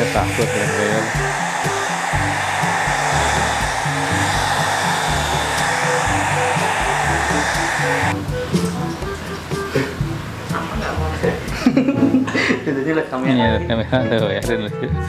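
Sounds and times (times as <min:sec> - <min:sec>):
hair dryer blowing: 0:00.0 - 0:09.0
background music: 0:00.0 - 0:15.0.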